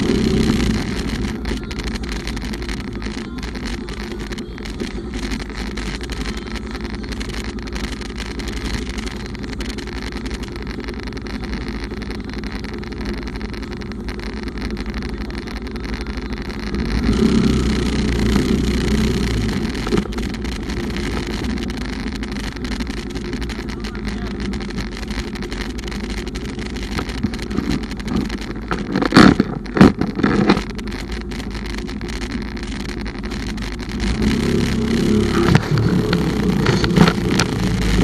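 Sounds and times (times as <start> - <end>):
motorcycle engine hum: 0.0 - 38.0.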